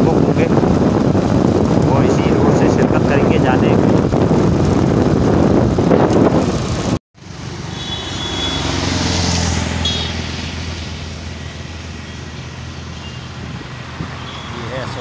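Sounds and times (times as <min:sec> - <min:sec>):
wind buffeting microphone: 0:00.0 - 0:07.0, 0:13.3 - 0:15.0
road noise: 0:00.0 - 0:15.0.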